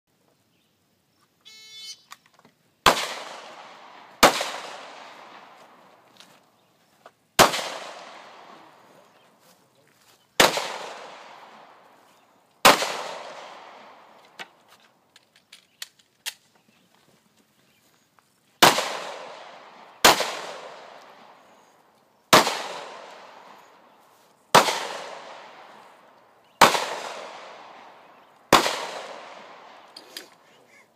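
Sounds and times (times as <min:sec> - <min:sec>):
pistol shots echoing: 0:02.8 - 0:05.8, 0:07.4 - 0:09.0, 0:10.4 - 0:11.9, 0:12.6 - 0:14.1, 0:18.6 - 0:21.5, 0:22.3 - 0:23.8, 0:24.5 - 0:30.0.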